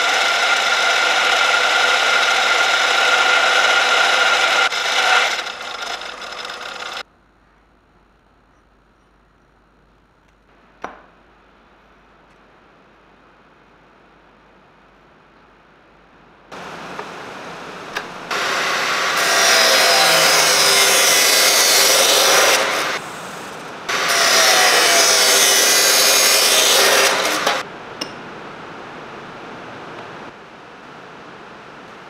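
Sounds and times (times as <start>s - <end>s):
saw grinding through steel: 0.0s - 7.0s, 18.3s - 27.6s
quiet steady noise: 7.0s - 18.6s.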